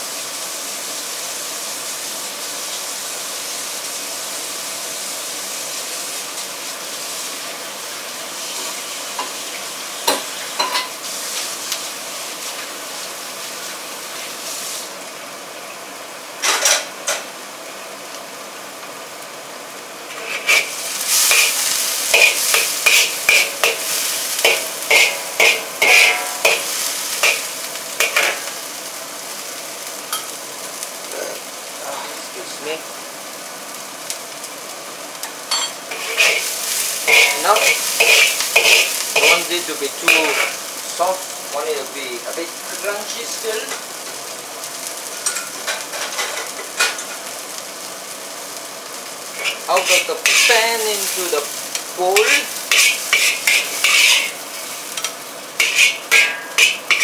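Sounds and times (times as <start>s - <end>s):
rice sizzling in a hot pan: 0.0s - 57.0s
spatula scraping and knocking pan: 20.1s - 28.6s, 35.5s - 40.6s, 49.4s - 51.4s, 52.2s - 57.0s.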